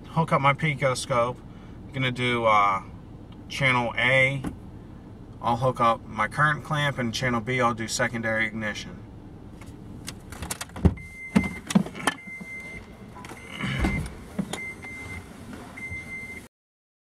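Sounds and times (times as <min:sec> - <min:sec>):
knocks and clicks in vehicle cab: 0:10.1 - 0:15.0.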